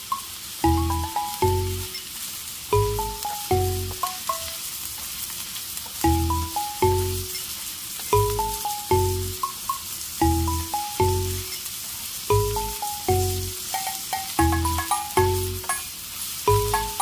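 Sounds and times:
light background tune: 0:00.0 - 0:01.9, 0:02.8 - 0:04.6, 0:06.1 - 0:07.3, 0:08.2 - 0:11.5, 0:12.3 - 0:15.9, 0:16.5 - 0:17.0
vegetables sizzling in a pan: 0:00.0 - 0:17.0.

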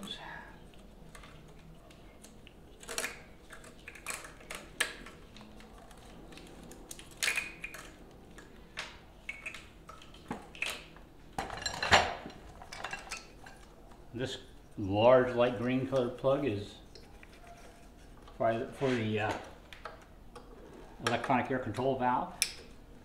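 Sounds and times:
plastic connectors clicking and rustling: 0:00.7 - 0:10.9.

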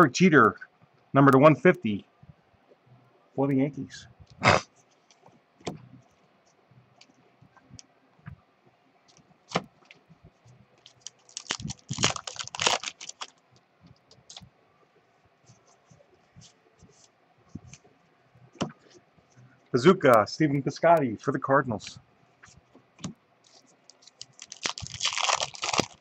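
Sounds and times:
wrapper crinkling and tearing: 0:10.8 - 0:13.4, 0:23.5 - 0:26.0.

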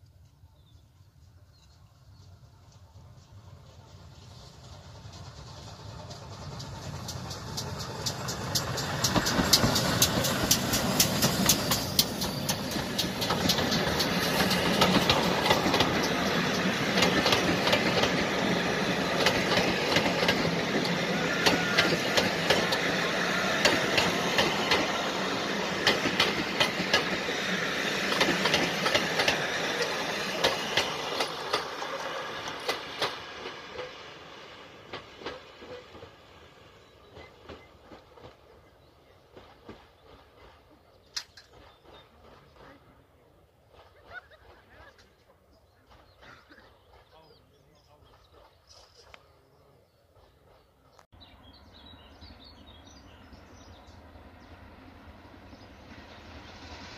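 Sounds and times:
steam train passing: 0:00.2 - 0:56.9
wheels clicking over rail joints: 0:05.0 - 0:34.0.

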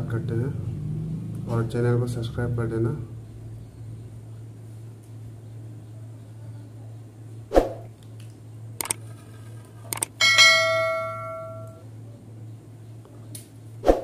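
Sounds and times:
mouse clicks: 0:08.8 - 0:09.0, 0:09.9 - 0:10.1
notification bell ding: 0:10.2 - 0:11.8.

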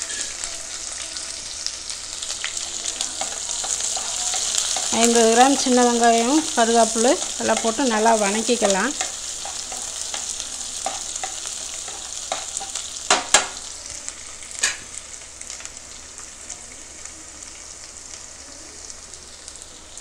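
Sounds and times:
onions sizzling in oil: 0:00.0 - 0:20.0
spatula stirring in pan: 0:01.6 - 0:13.8.

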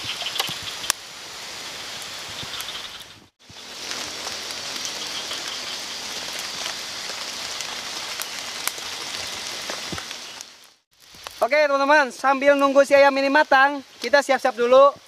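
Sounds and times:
steady rain hiss: 0:00.0 - 0:15.0
raindrop ticks: 0:03.8 - 0:11.4.

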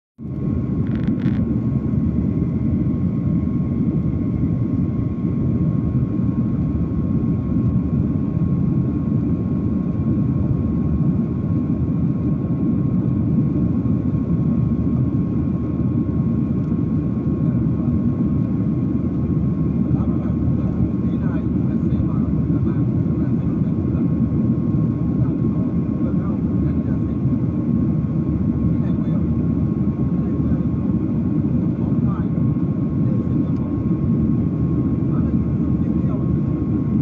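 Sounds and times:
thin steady whine: 0:00.2 - 0:10.0
jet engine and airflow roar: 0:00.2 - 0:37.0.

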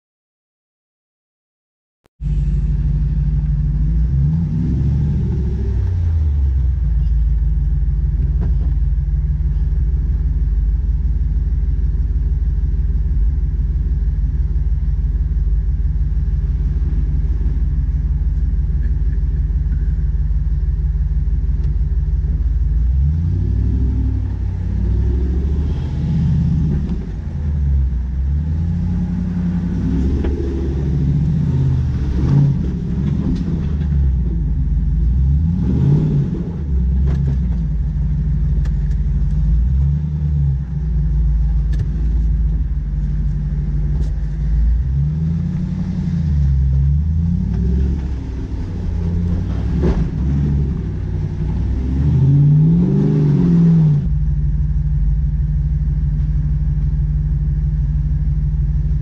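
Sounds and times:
engine revving: 0:02.2 - 0:07.1, 0:14.6 - 0:20.3, 0:21.6 - 0:54.4.

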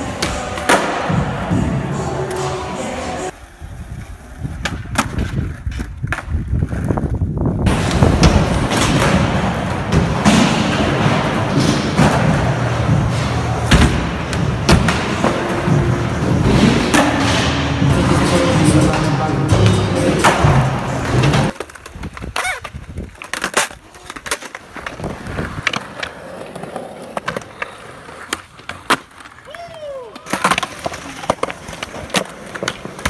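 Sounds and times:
skateboard wheels rolling: 0:00.0 - 0:33.0
skateboard clacks: 0:18.1 - 0:33.0.

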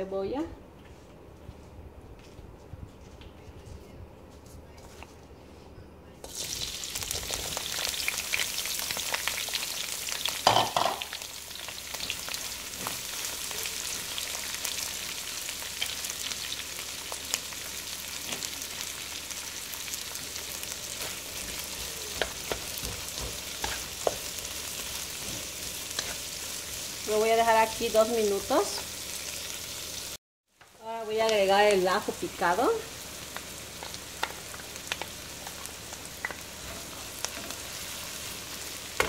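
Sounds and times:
onions sizzling in oil: 0:06.2 - 0:39.0
wooden spoon scraping a wok: 0:20.0 - 0:27.1, 0:36.4 - 0:38.4.

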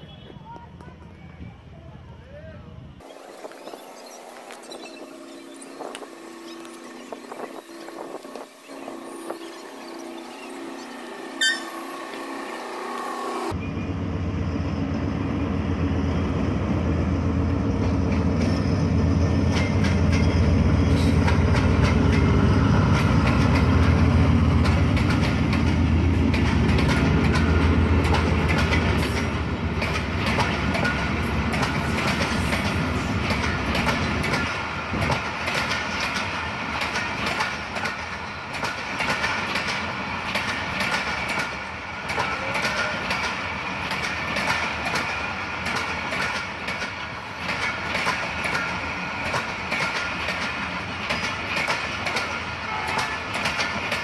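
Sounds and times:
locomotive engine rumble: 0:03.8 - 0:53.8
train wheels clickety-clack: 0:17.8 - 0:54.0.

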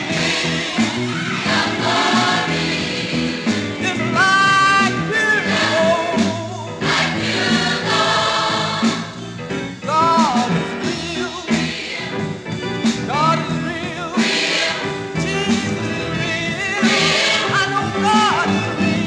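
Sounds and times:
choir singing: 0:00.0 - 0:09.3, 0:10.7 - 0:12.4, 0:13.9 - 0:19.0
man singing lead vocal: 0:03.8 - 0:06.8, 0:09.9 - 0:11.7, 0:13.1 - 0:14.3, 0:15.2 - 0:19.0.

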